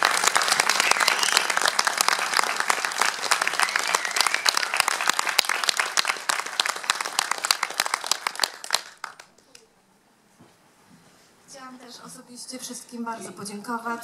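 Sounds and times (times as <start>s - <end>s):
audience clapping: 0.0s - 9.7s.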